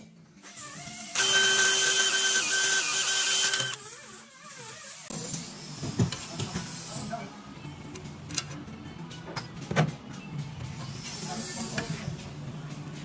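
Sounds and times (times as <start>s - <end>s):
power drill running: 1.0s - 5.0s.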